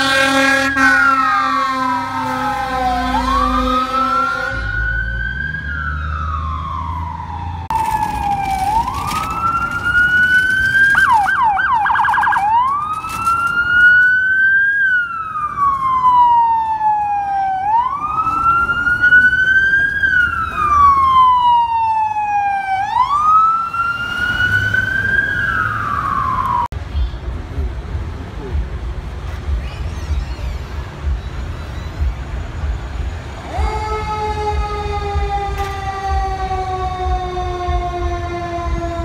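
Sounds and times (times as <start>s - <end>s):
siren wailing: 0.0s - 26.7s, 33.4s - 39.0s
engine and traffic rumble: 0.0s - 39.0s
siren yelping: 0.8s - 26.7s.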